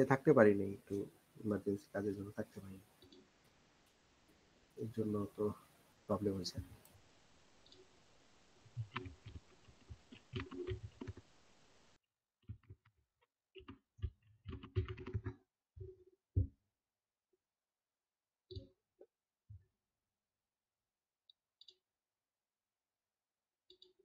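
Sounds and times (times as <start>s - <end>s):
low background hiss: 0.0s - 12.0s
typing on computer keyboard: 8.8s - 11.2s, 14.0s - 15.4s.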